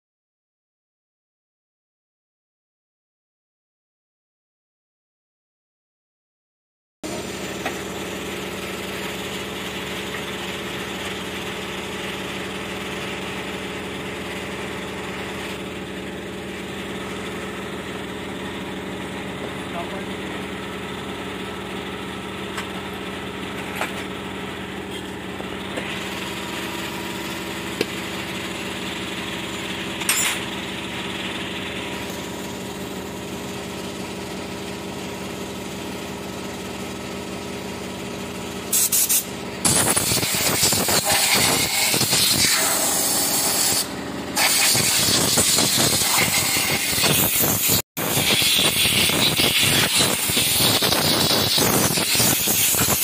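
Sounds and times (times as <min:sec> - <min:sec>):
steady machine hum: 0:07.0 - 0:37.6
compressed-air spray gun hissing: 0:38.7 - 0:53.0.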